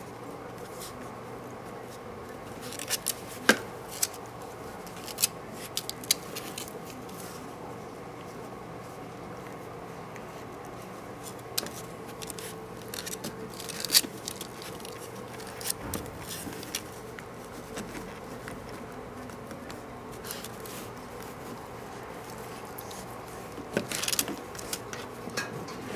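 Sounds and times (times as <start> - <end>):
puppy gnawing on toy: 0.0 - 25.9
steady low hum: 0.0 - 25.9.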